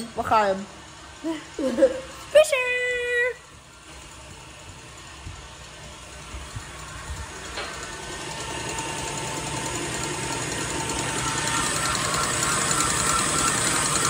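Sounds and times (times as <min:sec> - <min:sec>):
hand-pumped cream maker whirring: 0:00.0 - 0:14.0
ratchet-like gear clicking: 0:03.9 - 0:14.0.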